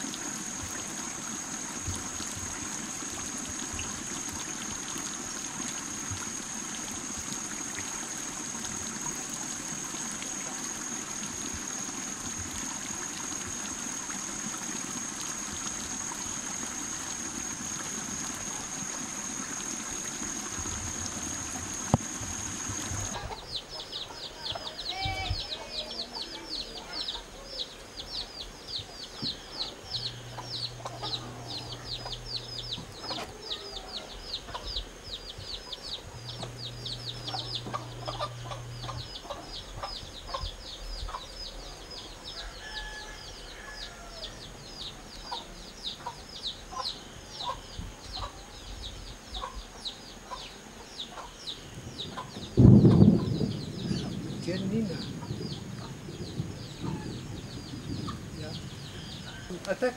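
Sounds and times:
running water: 0.0 - 59.9
hen clucking: 21.7 - 40.5, 49.4 - 51.4, 52.1 - 53.4
chicks peeping: 22.7 - 42.7, 44.7 - 59.9.

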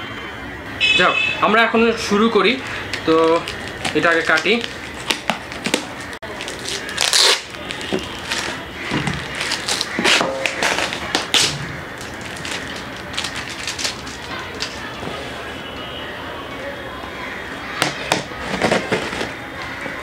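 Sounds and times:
tape crinkling: 2.6 - 15.0
packing tape tearing: 2.7 - 14.8
cardboard box scraping and knocking: 18.4 - 19.4.

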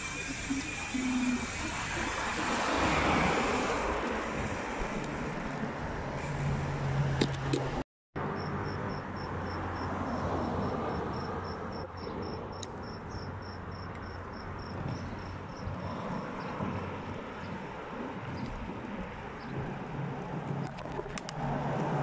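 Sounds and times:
low traffic hum: 0.0 - 22.0
street noise rush: 0.0 - 22.0.

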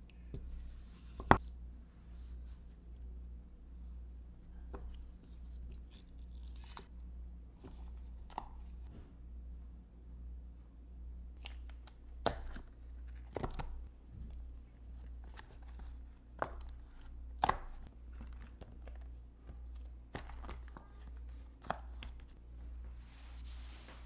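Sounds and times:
cloth swishing across board: 22.9 - 24.0.

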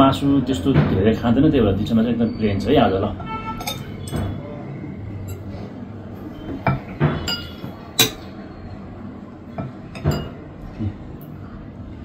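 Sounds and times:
spoons clinking against bowls: 3.6 - 4.4, 6.7 - 8.4, 9.6 - 10.4.

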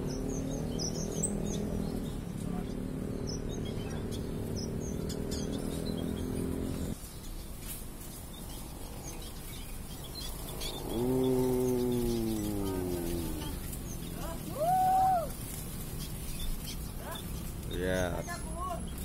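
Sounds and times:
small birds chirping: 0.0 - 19.0
low drone falling in pitch: 10.6 - 15.3.

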